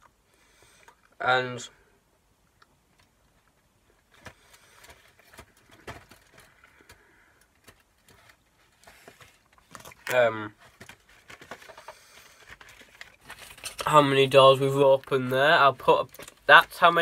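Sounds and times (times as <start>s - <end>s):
cardboard rustling: 3.9s - 17.0s.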